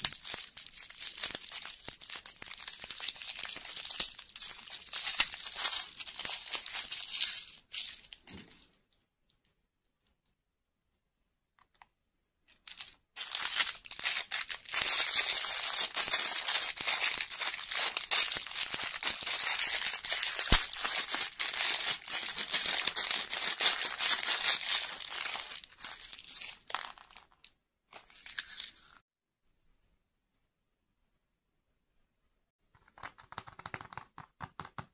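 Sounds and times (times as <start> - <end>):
plastic bag crinkling: 12.6 - 27.5.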